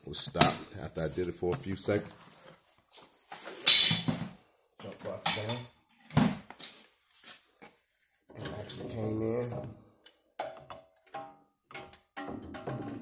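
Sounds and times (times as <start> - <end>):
metal clanks of tools: 3.6 - 4.3, 5.2 - 5.7.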